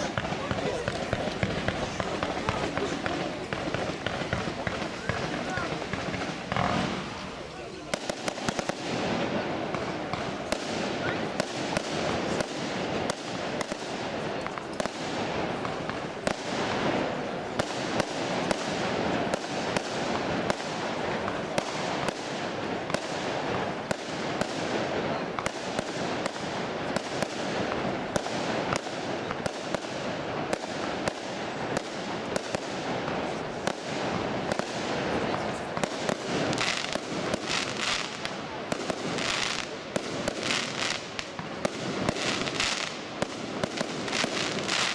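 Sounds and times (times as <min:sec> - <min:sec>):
firecrackers crackling and banging: 0:00.0 - 0:44.9.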